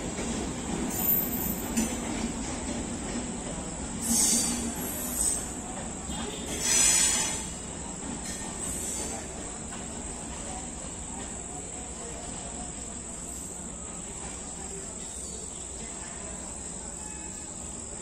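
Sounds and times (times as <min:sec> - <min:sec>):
crickets trilling: 0:12.3 - 0:18.0.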